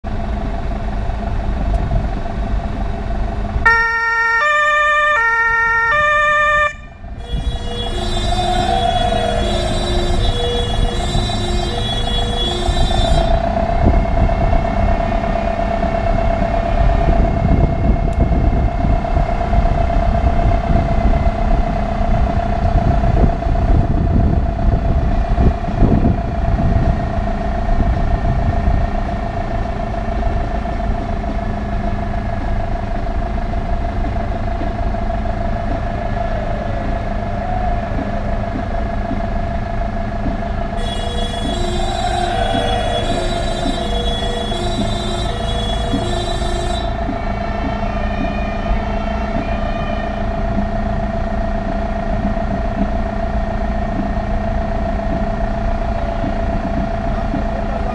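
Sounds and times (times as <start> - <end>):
truck engine and road noise: 0.0 - 57.9
wind buffeting microphone: 6.9 - 45.0.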